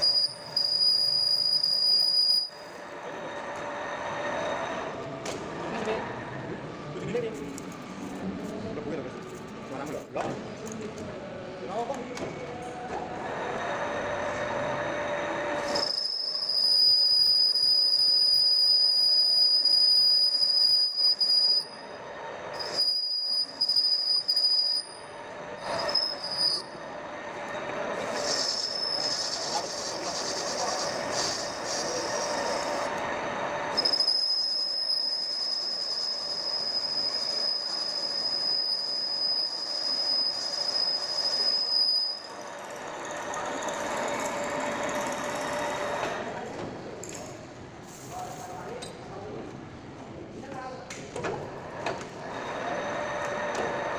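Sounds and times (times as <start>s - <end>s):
lathe tool squealing: 0.0s - 4.8s, 13.6s - 46.2s, 52.2s - 53.9s
lathe running: 25.2s - 46.2s, 52.2s - 53.9s.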